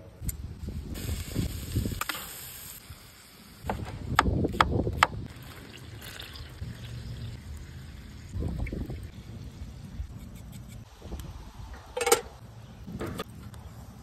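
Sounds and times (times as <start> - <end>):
meat sizzling in a skillet: 1.0 - 3.6.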